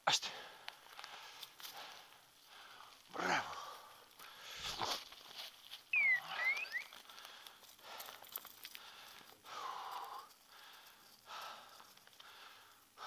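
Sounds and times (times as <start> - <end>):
faint rustling in scrub: 0.8 - 13.0
short whistle: 5.9 - 6.9.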